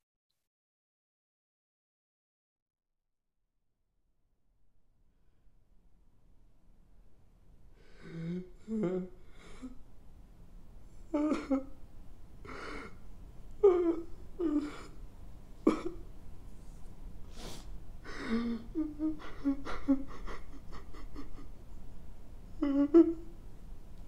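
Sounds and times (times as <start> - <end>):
gasping breaths: 7.8 - 9.8
man sobbing: 7.8 - 9.8, 11.0 - 11.8, 13.6 - 15.0, 15.7 - 16.0, 18.1 - 21.6, 22.6 - 23.3.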